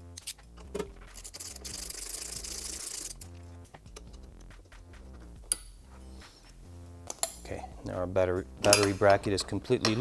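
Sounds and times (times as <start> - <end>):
ratchet wrench clicking: 1.2 - 3.3.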